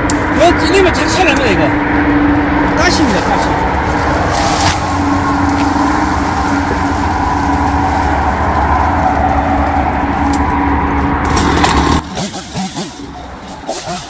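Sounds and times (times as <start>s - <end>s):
chainsaw running: 11.0s - 14.0s.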